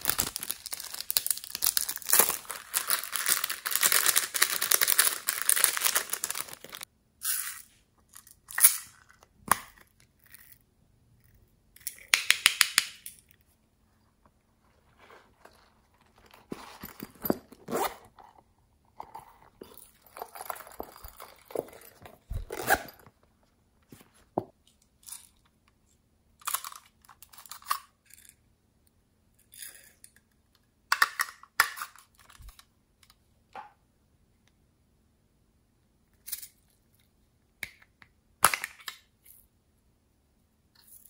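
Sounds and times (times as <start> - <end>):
plastic crinkles and rustles: 0.0 - 6.9.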